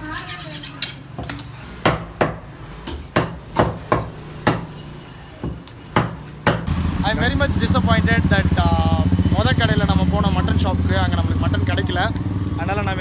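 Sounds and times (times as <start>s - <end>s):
cleaver chopping meat on wooden block: 1.8s - 4.7s, 5.4s - 6.7s.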